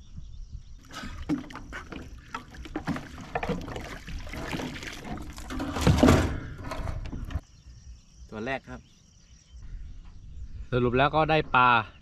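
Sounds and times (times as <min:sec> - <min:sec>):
water splashing against boat: 0:00.8 - 0:07.4.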